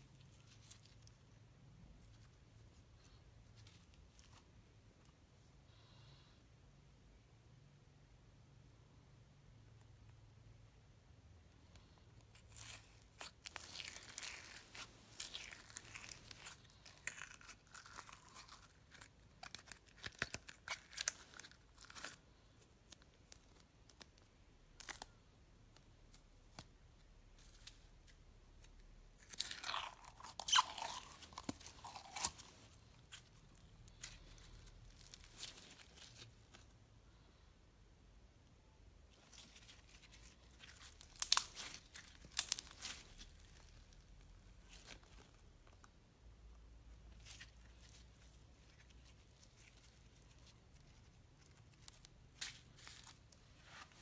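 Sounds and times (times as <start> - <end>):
foam bead slime crunching: 11.8 - 25.2, 27.4 - 36.7, 39.1 - 54.0.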